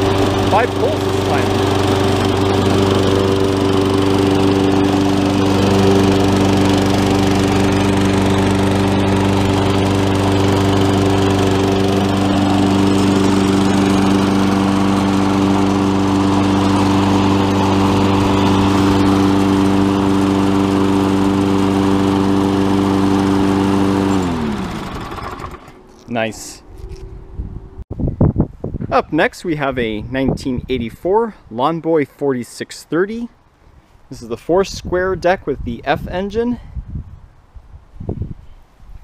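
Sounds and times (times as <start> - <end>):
lawnmower engine running: 0.0 - 27.8.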